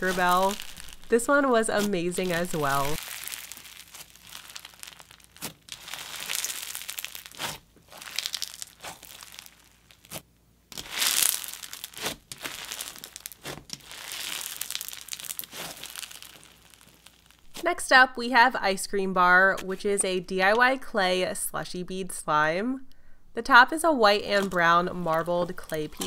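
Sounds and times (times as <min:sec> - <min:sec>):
bead slime crunching: 0:00.0 - 0:17.7, 0:24.1 - 0:26.0.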